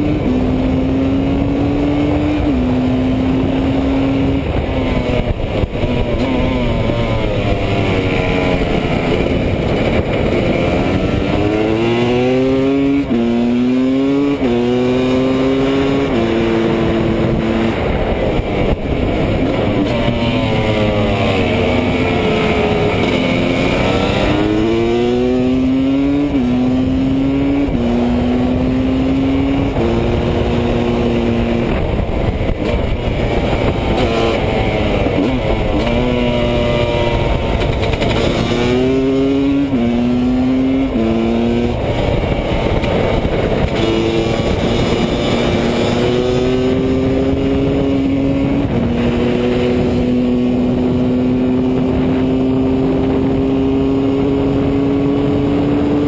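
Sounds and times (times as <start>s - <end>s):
motorcycle engine revving: 0.0s - 56.0s
wind rushing: 0.0s - 56.0s.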